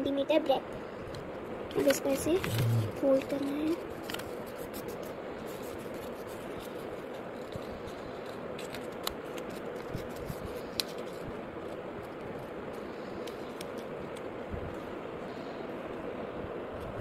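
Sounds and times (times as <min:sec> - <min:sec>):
steady background noise: 0:00.0 - 0:17.0
paper rustling and crinkling: 0:01.8 - 0:13.9.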